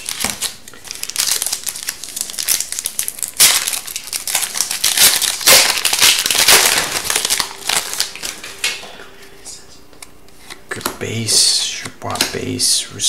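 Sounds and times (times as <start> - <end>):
foil wrapper crinkling: 0.0 - 9.0.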